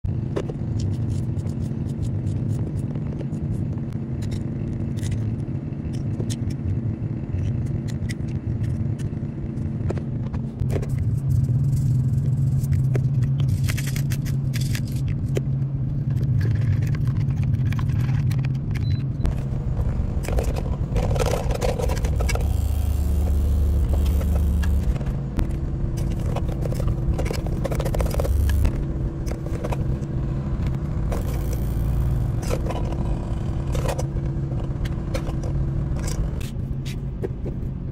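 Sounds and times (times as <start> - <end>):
diesel engine idling: 19.3 - 37.2.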